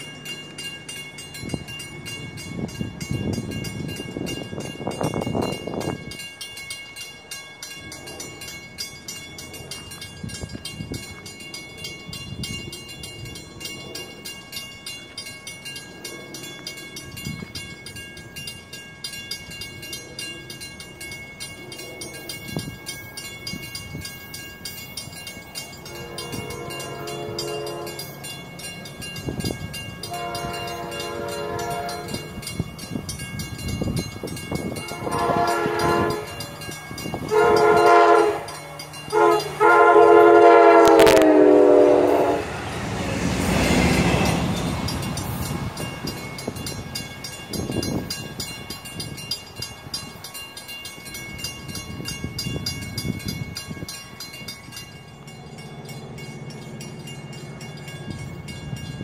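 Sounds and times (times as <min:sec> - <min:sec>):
train wheels rolling: 0:00.0 - 0:59.0
train horn blasts: 0:25.9 - 0:28.2, 0:30.1 - 0:32.4, 0:34.8 - 0:36.6, 0:37.2 - 0:44.5.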